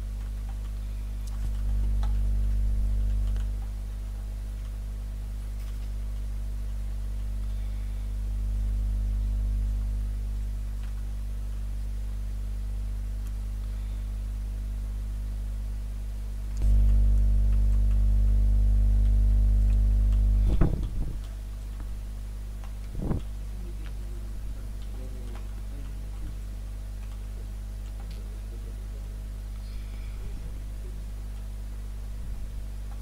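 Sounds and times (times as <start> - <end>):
electrical mains hum: 0.0 - 33.0
faint clicks: 27.0 - 28.4.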